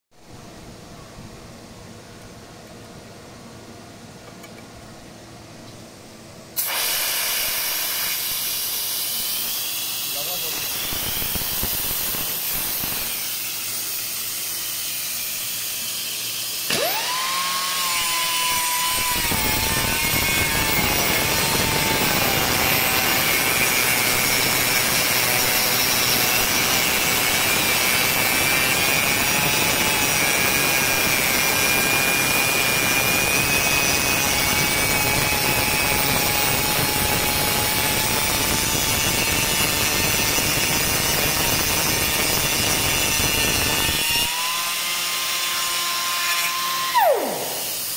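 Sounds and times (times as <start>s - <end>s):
compressed air hissing: 6.6s - 13.2s
saw blade grinding: 8.0s - 47.9s
air motor whine: 16.1s - 44.4s, 46.6s - 47.9s.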